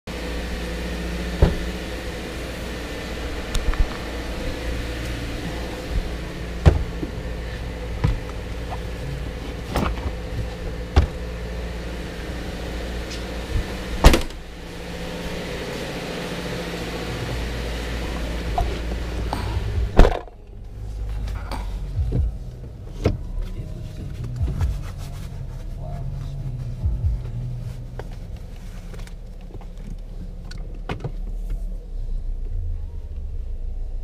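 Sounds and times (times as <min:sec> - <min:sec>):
low steady hum: 0:00.1 - 0:34.0
car hatch banging: 0:01.2 - 0:01.9, 0:05.1 - 0:08.9, 0:09.6 - 0:11.5, 0:13.4 - 0:15.2, 0:19.8 - 0:20.4
car door and hatch clunks: 0:01.2 - 0:11.8, 0:12.8 - 0:20.5, 0:22.0 - 0:24.8.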